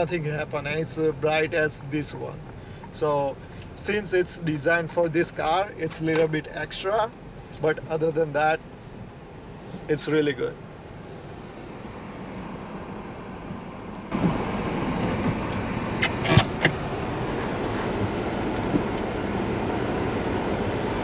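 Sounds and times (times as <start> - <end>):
car cabin running noise: 0.0 - 21.0.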